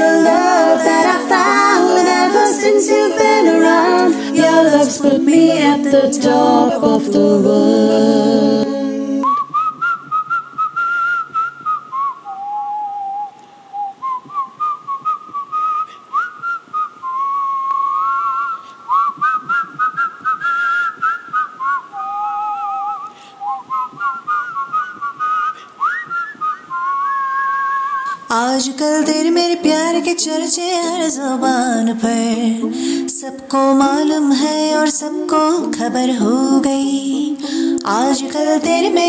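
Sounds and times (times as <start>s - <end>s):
person whistling a melody: 9.2s - 28.2s.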